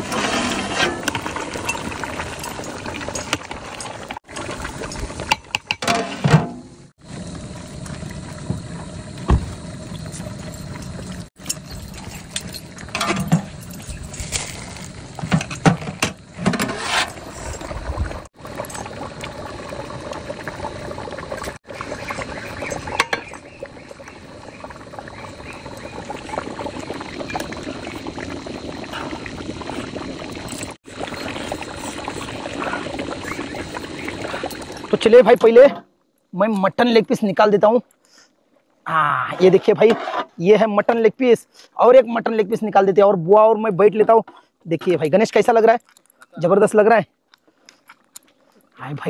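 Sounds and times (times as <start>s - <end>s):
ladle scraping metal pot: 0.0s - 4.1s, 16.3s - 17.7s, 39.4s - 40.4s
stew bubbling in pot: 0.0s - 6.2s, 6.9s - 35.6s.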